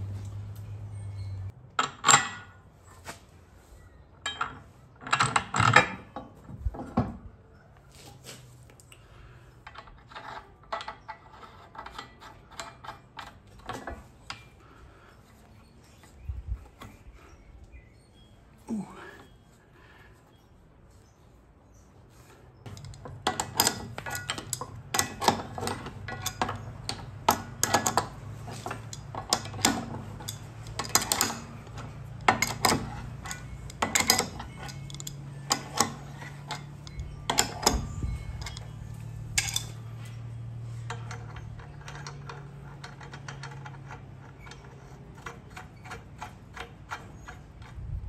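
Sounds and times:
wrench clinking on metal bolts: 0:01.0 - 0:02.6, 0:04.2 - 0:07.0, 0:09.6 - 0:14.6, 0:22.7 - 0:48.0.

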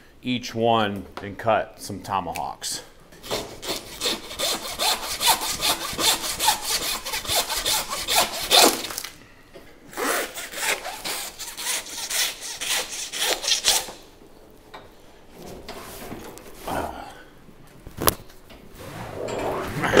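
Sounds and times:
hand saw rasping through bone: 0:03.2 - 0:09.0, 0:10.0 - 0:14.0.

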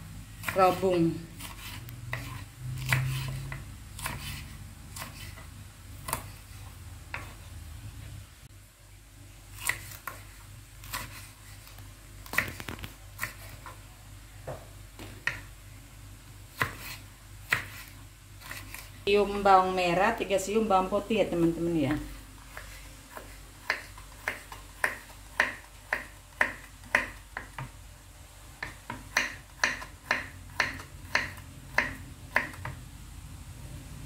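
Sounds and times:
knife chopping on wooden board: 0:01.4 - 0:06.4, 0:16.6 - 0:18.8, 0:21.9 - 0:27.7, 0:28.6 - 0:32.8.

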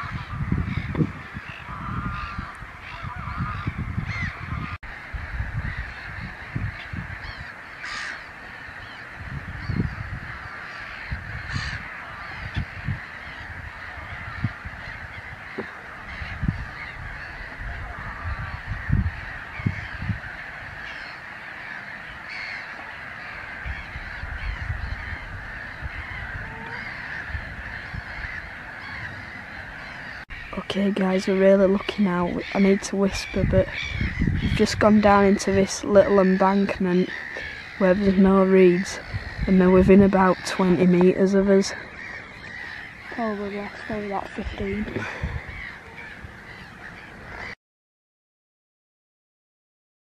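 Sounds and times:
low rumbles on microphone: 0:00.0 - 0:07.4
waterbirds calling: 0:00.0 - 0:47.6.

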